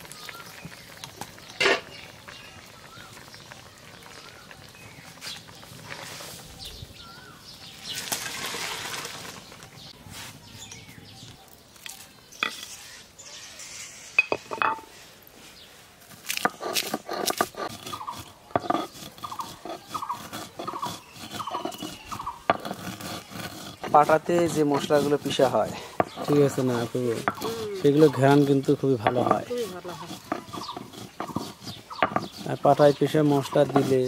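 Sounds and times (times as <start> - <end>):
water splashing out of a pan: 7.9 - 9.6
stone roller grinding on stone: 16.1 - 34.0.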